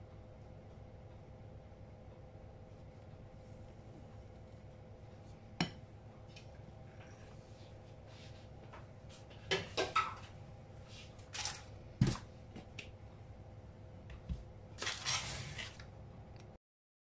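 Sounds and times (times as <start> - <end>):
paper rustling: 11.1 - 12.2, 14.8 - 15.9.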